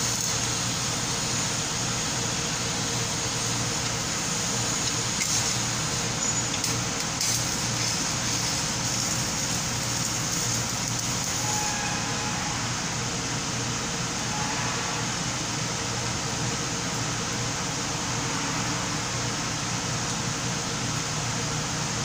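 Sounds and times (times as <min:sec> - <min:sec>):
welding arc crackling hiss: 0:00.0 - 0:14.4
low machine hum: 0:00.0 - 0:22.0.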